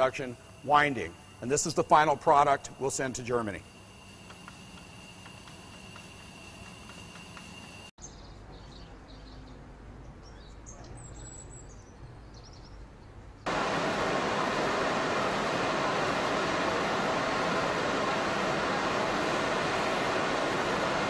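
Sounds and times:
ventilation rushing noise: 0:00.0 - 0:07.9, 0:13.4 - 0:21.0
machinery hum and whine: 0:00.0 - 0:21.0
faint bird chirps: 0:05.6 - 0:13.1.

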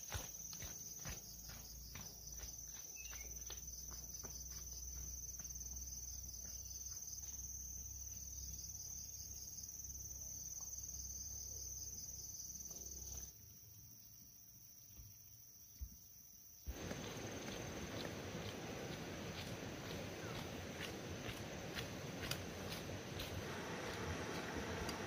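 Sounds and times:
flip-flop footsteps on dirt path: 0:00.0 - 0:07.6, 0:16.7 - 0:25.0
insects trilling: 0:00.0 - 0:25.0
low steady rumble: 0:16.7 - 0:25.0.

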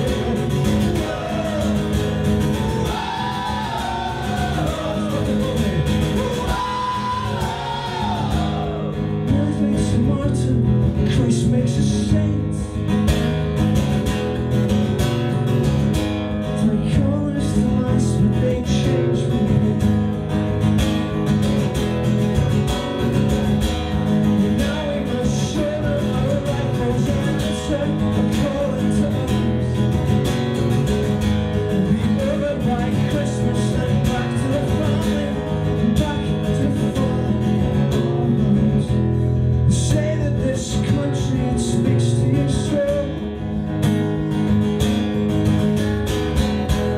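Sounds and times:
man singing into a microphone: 0:00.0 - 0:12.8, 0:16.4 - 0:20.0, 0:24.4 - 0:29.8, 0:31.6 - 0:43.4
strummed acoustic guitar: 0:00.0 - 0:46.9.

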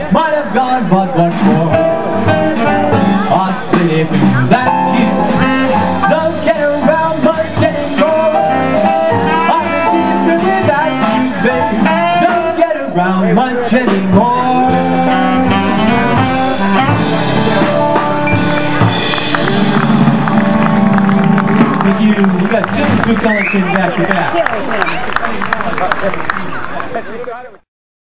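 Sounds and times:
jazz band playing: 0:00.0 - 0:25.2
saxophone melody: 0:01.3 - 0:12.7, 0:14.2 - 0:23.8.

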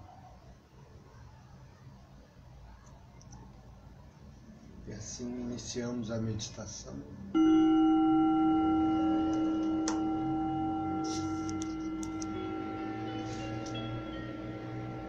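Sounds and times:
singing bowl ringing: 0:07.4 - 0:15.0.

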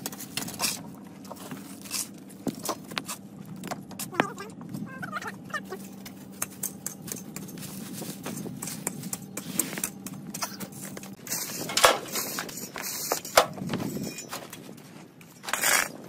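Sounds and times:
steady low hum: 0:00.0 - 0:16.0
rustling scrape: 0:07.5 - 0:09.8, 0:10.4 - 0:16.0.

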